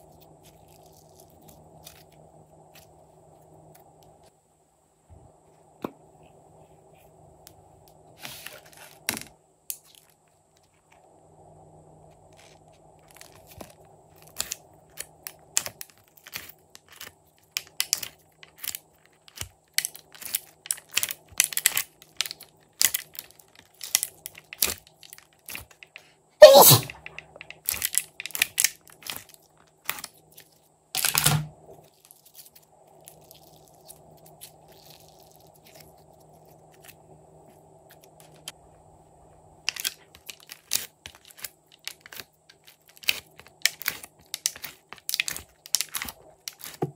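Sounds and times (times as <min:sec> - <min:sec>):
sticky slime clicks and crackles: 0:13.0 - 0:25.9, 0:39.6 - 0:46.8
loud slime squelch: 0:26.4 - 0:27.0.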